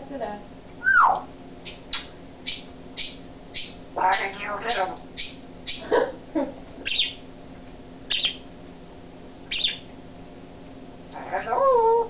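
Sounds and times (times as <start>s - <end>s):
parrot chirps and whistles: 0.8s - 5.9s, 6.8s - 7.2s, 8.1s - 8.5s, 9.5s - 9.9s.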